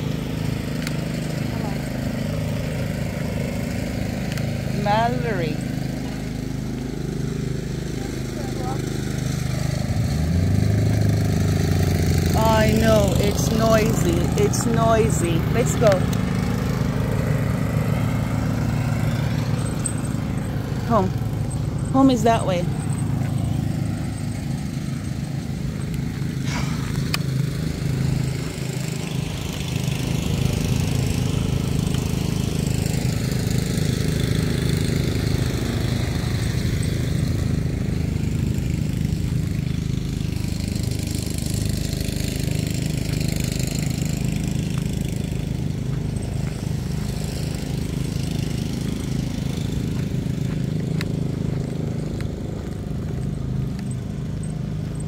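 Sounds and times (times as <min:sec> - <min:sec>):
lawn mower engine running: 0:00.0 - 0:55.0.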